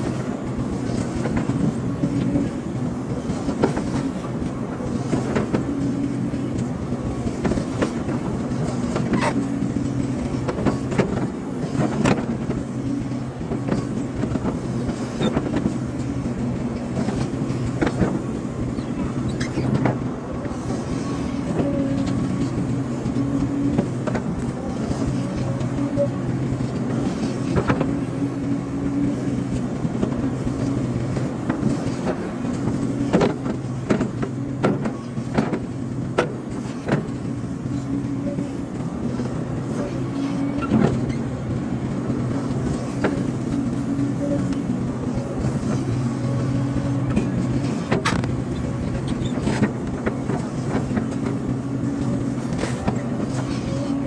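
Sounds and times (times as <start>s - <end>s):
excavator diesel engine running: 0.0s - 54.0s
excavator knocks and clanks: 28.9s - 41.3s, 46.8s - 54.0s.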